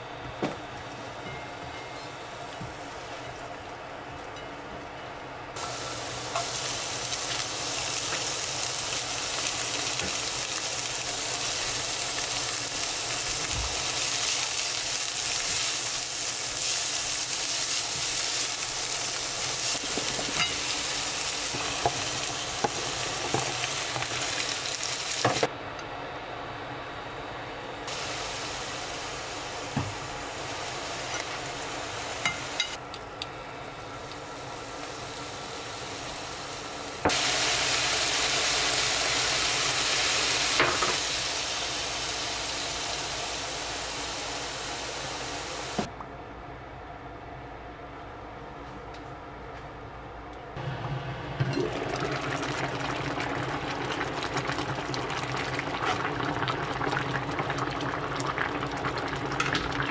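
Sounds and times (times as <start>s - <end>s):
food sizzling in a pan: 5.6s - 25.5s, 27.9s - 32.8s, 34.3s - 45.9s, 50.6s - 59.9s.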